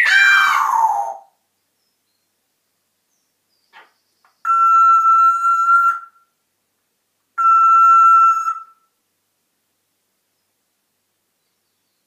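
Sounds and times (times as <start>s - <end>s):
parrot whistling long notes: 4.5s - 6.2s, 7.4s - 8.8s.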